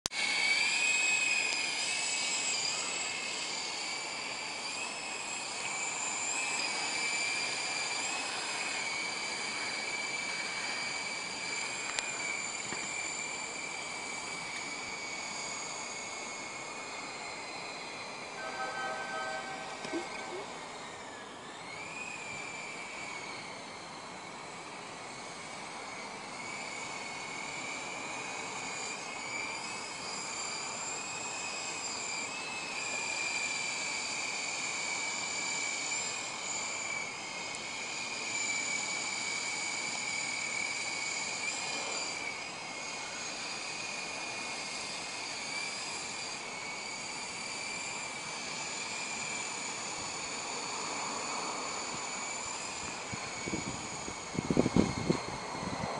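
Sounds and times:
toy helicopter motor whine: 0:00.1 - 0:55.9.

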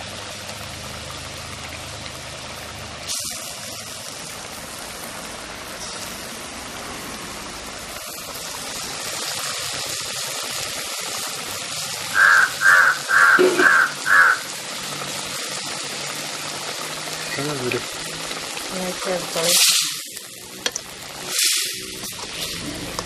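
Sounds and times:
pot simmering hiss: 0:00.0 - 0:23.0
crow cawing: 0:12.1 - 0:14.5.

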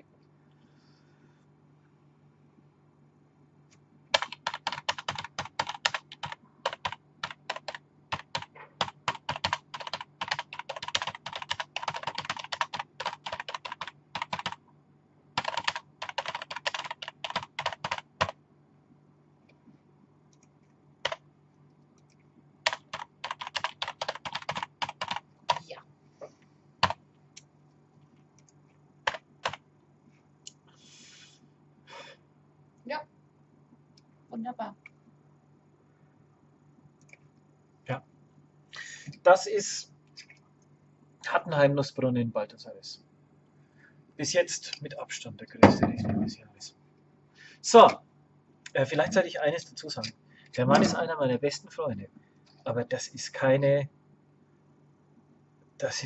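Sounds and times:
typing on computer keyboard: 0:04.1 - 0:14.6, 0:15.4 - 0:18.4, 0:22.6 - 0:25.6, 0:29.1 - 0:29.6.

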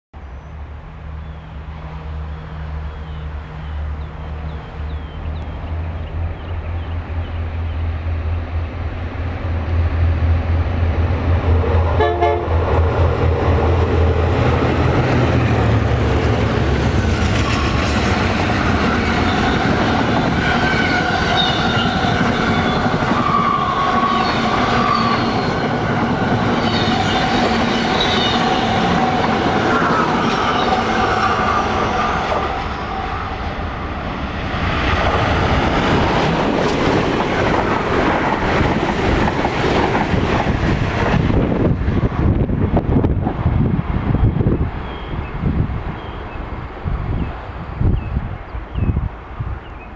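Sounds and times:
diesel locomotive engine drone: 0:00.2 - 0:49.9
rumble of passing train cars: 0:00.2 - 0:49.9
train horn: 0:11.9 - 0:12.7, 0:17.4 - 0:33.9.

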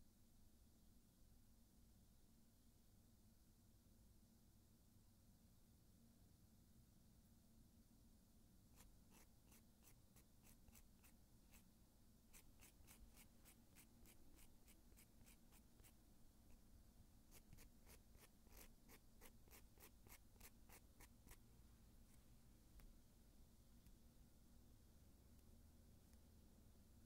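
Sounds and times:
nail file scraping fingernails: 0:08.8 - 0:11.7, 0:12.3 - 0:16.0, 0:17.3 - 0:21.4.

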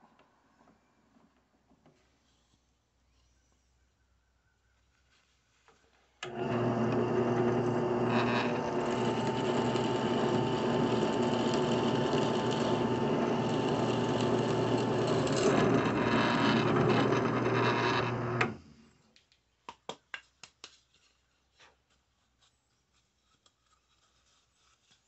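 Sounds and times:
drill press motor hum: 0:06.2 - 0:18.7.

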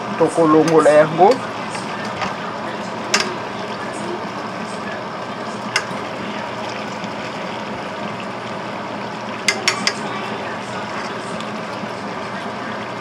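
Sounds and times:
fish simmering in oil: 0:00.0 - 0:13.0
spoon clicking against pan: 0:09.5 - 0:10.0.

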